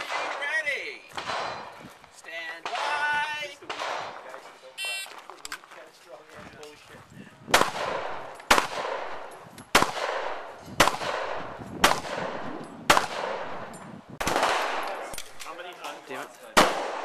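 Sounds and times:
pistol shots with echo: 0.0s - 1.8s, 2.6s - 4.4s, 7.5s - 15.5s, 16.6s - 17.0s.

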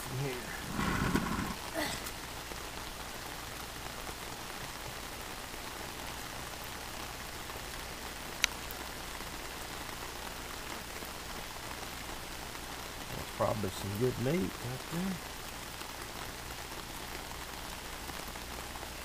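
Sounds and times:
rain falling on pavement: 0.0s - 19.0s.

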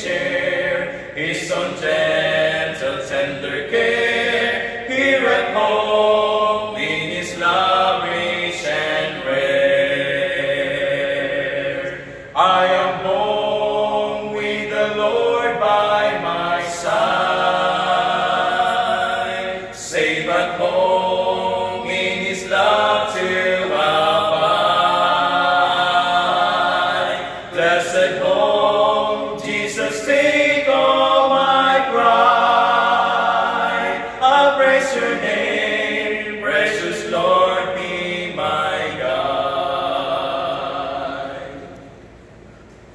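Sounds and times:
male vocal quartet singing: 0.0s - 42.0s.

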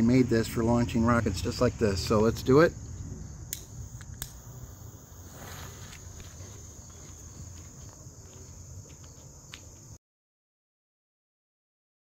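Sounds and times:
crickets trilling: 0.0s - 10.0s
hand lighter click: 3.5s - 4.4s.

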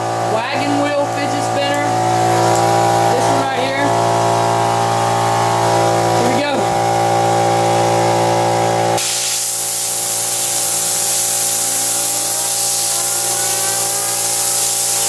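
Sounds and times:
steady hum: 0.0s - 15.0s
compressed air hiss: 9.0s - 15.0s.

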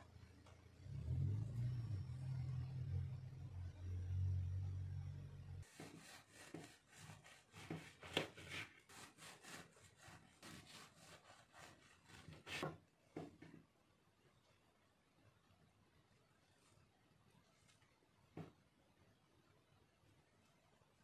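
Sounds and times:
low steady hum: 0.0s - 5.7s
knife sawing through bread: 5.6s - 12.8s.

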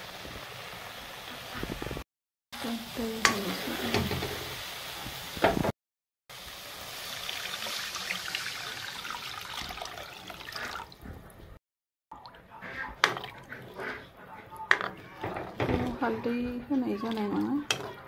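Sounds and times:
water pouring into wok: 6.3s - 11.0s
metal ladle scraping wok: 12.6s - 18.0s.

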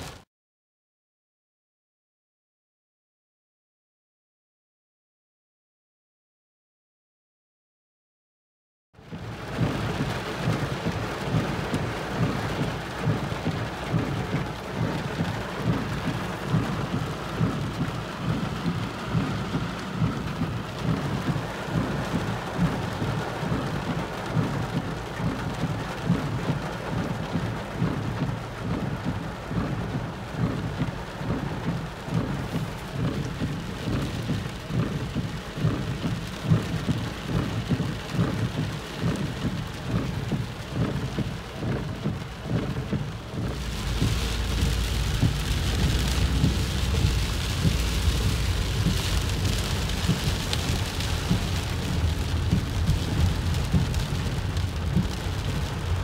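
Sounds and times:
heavy rain on car roof: 0.0s - 0.2s, 9.0s - 56.0s.

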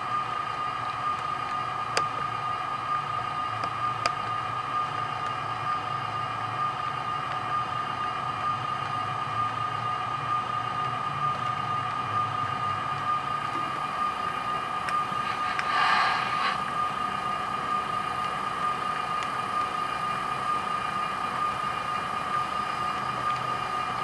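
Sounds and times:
model train whining and rumbling: 0.0s - 24.0s.

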